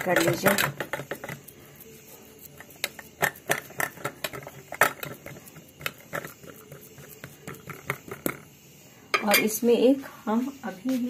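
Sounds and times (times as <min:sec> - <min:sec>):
spoon tapping metal pan: 0:09.1 - 0:09.6.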